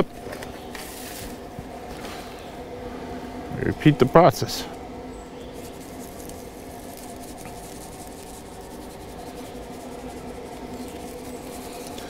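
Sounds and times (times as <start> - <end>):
steady low hum: 0.0 - 12.0
rub shaken from shaker bottle: 5.6 - 12.0.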